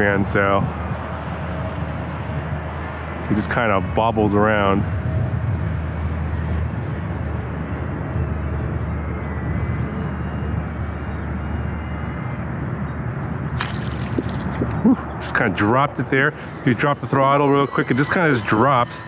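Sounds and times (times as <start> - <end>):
high whine of small motors: 0.0 - 14.9, 15.8 - 19.0
steady low rumble: 0.0 - 19.0
model plane hitting water: 13.6 - 14.7.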